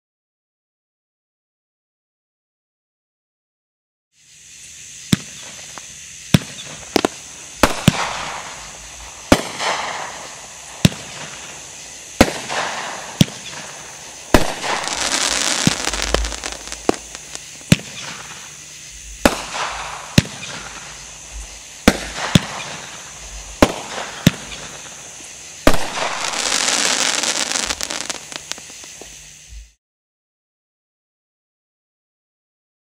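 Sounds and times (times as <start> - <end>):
fireworks noise: 4.2 - 29.8
fireworks bangs: 5.0 - 29.8.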